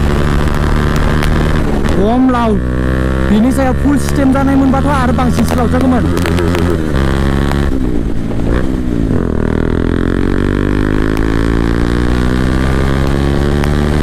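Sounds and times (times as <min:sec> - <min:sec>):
motorcycle engine accelerating: 0:00.0 - 0:14.0.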